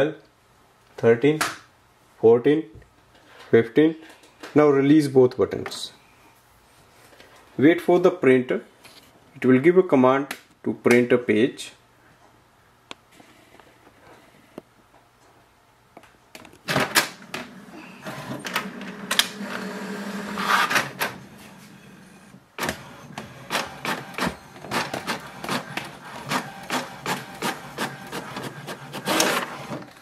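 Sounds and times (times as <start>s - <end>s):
printer motor hum: 17.6s - 29.9s
print carriage clicking: 22.6s - 29.9s
printer clunks: 22.6s - 29.9s.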